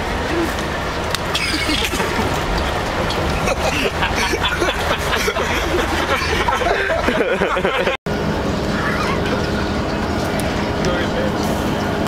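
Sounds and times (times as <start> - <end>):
bus rumbling: 0.0 - 12.0
murmured chatter of passengers: 8.2 - 11.8.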